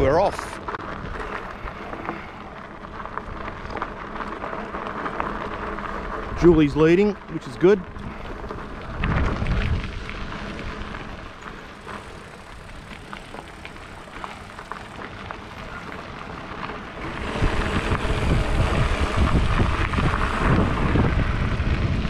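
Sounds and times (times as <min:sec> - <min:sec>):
tyres crunching on dirt: 0:00.0 - 0:22.0
wind noise on microphone: 0:07.9 - 0:11.3, 0:17.0 - 0:22.0.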